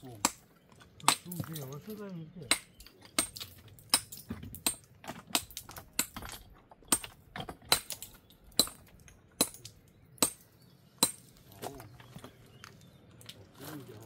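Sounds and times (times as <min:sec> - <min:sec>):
hammer striking stone: 0:02.5 - 0:11.3.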